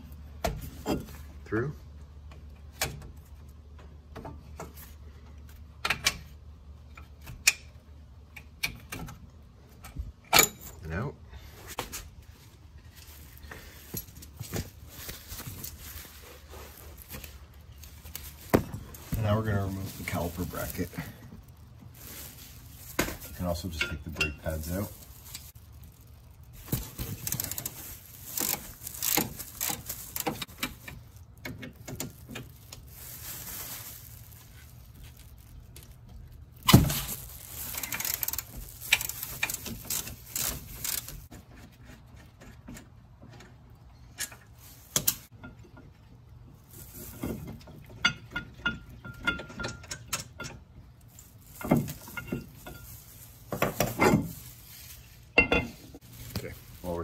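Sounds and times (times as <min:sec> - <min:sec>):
metal clicks and clanks: 0:47.6 - 0:50.7.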